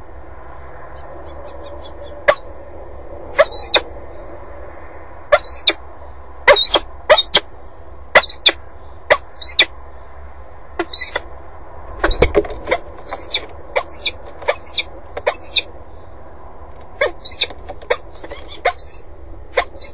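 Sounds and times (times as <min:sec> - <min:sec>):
steady low background noise: 0:00.0 - 0:19.9
falcon harsh calls: 0:12.0 - 0:15.7, 0:17.0 - 0:19.0, 0:19.6 - 0:19.9.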